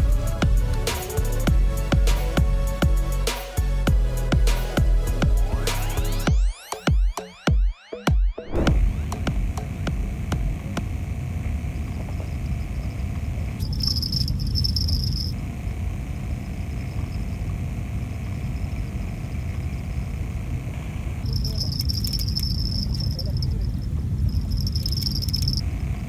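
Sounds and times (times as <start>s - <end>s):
insects chirring: 11.6s - 26.0s
high pulsing insect chirp: 11.7s - 26.0s.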